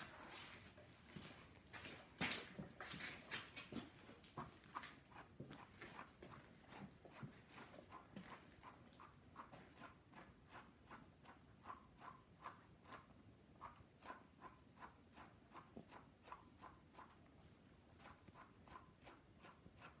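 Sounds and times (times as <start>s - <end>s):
brush scratching through dog fur: 3.6s - 17.3s, 17.9s - 20.0s.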